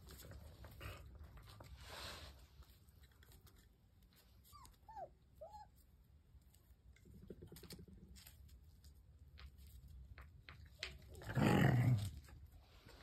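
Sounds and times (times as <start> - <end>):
low growl: 11.2 - 12.3.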